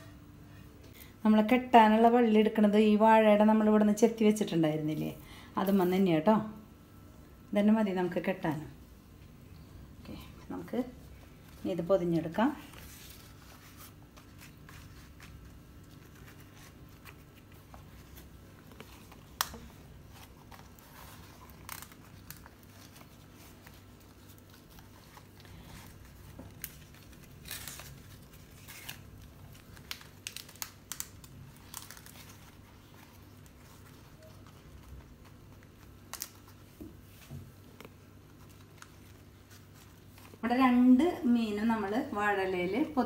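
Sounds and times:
leaf rustling and crinkling: 0:12.6 - 0:40.5.

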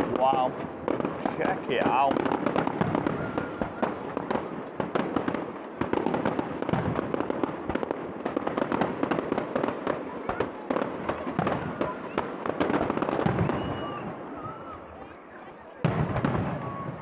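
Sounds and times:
fireworks bangs and pops: 0:00.0 - 0:17.0.

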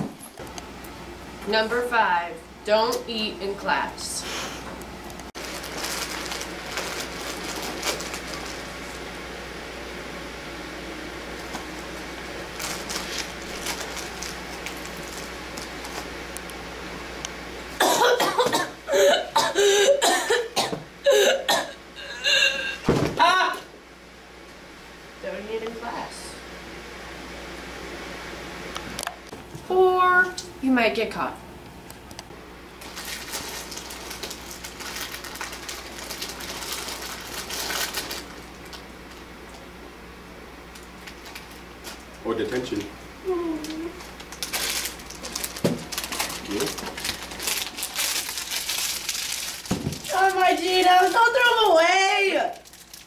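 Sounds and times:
plastic wrapper crinkling: 0:05.3 - 0:09.1, 0:11.3 - 0:16.5, 0:32.8 - 0:39.3, 0:40.7 - 0:42.9, 0:43.5 - 0:53.0
girl coughing hard: 0:17.8 - 0:23.6.

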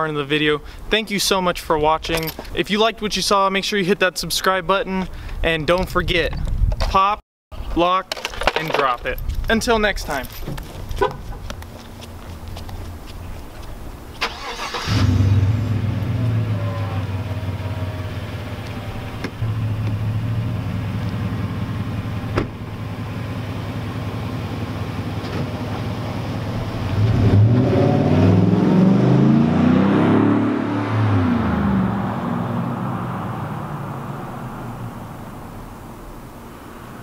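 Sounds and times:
truck engine starting and idling: 0:14.2 - 0:28.9
truck driving off revving: 0:14.2 - 0:37.0
door shutting: 0:22.3 - 0:22.6.

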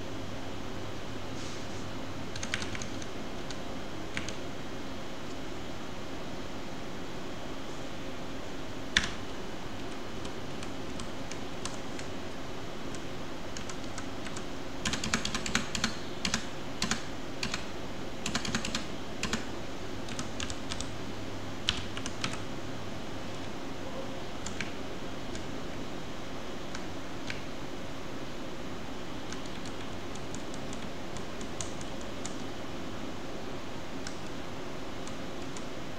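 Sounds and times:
steady background hiss: 0:00.0 - 0:35.9
computer keyboard typing: 0:02.3 - 0:04.4, 0:08.9 - 0:09.2, 0:09.8 - 0:12.1, 0:12.9 - 0:20.9, 0:21.6 - 0:22.4, 0:24.4 - 0:25.5, 0:29.3 - 0:32.5.

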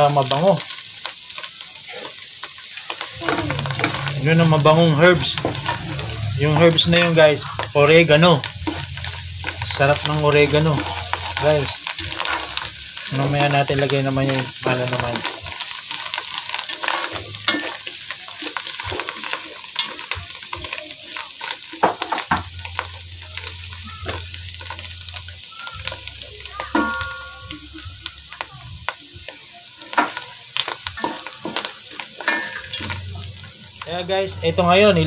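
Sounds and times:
mushrooms sizzling in a pot: 0:00.0 - 0:35.0
wooden spatula scraping a pot: 0:03.2 - 0:13.2.

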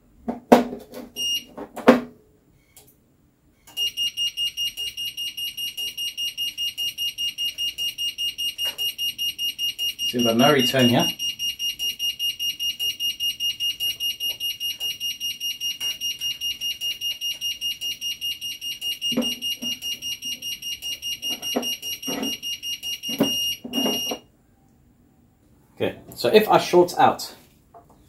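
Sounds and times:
pulsing high-pitched alarm beeps: 0:03.7 - 0:24.2.

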